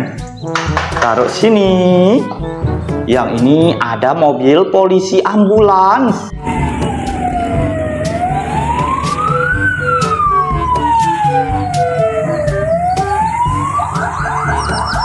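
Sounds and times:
ambulance siren wailing: 6.3s - 15.0s
siren fast yelp: 6.4s - 15.0s.

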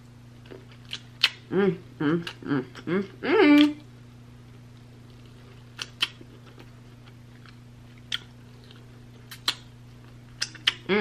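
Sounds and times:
wet mouth clicks: 0.8s - 1.4s, 9.3s - 9.7s, 10.4s - 10.9s
chewing meat: 4.8s - 10.9s.

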